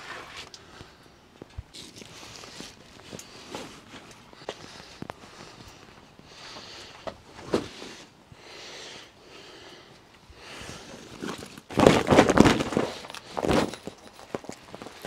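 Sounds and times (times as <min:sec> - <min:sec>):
plastic sheeting crinkling: 0:10.9 - 0:15.0.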